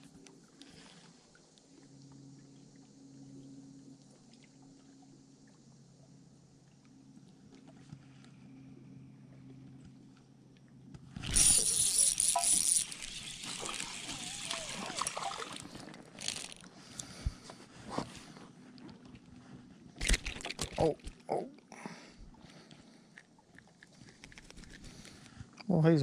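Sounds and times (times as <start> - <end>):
electric trolling motor humming: 11.2 - 17.5
rush of noise and handling: 11.2 - 21.2.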